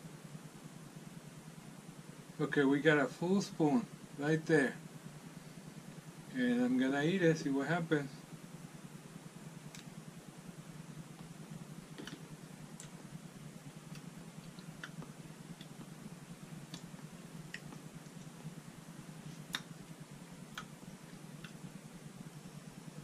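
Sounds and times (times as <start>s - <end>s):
steady low hum: 0.0s - 23.0s
mouth clicks and lip smacks: 11.9s - 13.0s, 13.8s - 15.9s, 16.5s - 18.4s, 19.3s - 20.8s.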